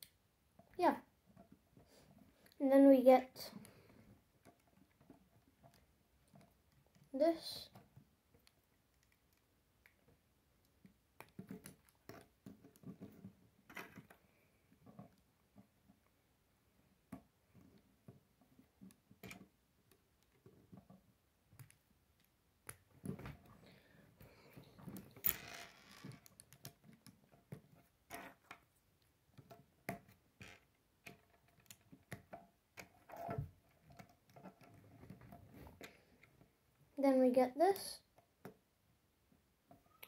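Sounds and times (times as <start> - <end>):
plastic pieces clicking together: 24.8 - 27.2.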